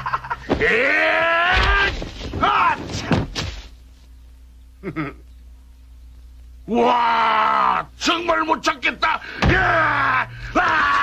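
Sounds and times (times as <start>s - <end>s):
low steady hum: 0.0s - 11.0s
dull thuds: 0.3s - 3.8s, 9.4s - 9.8s
man wailing: 0.6s - 3.0s, 6.7s - 7.9s, 9.4s - 11.0s.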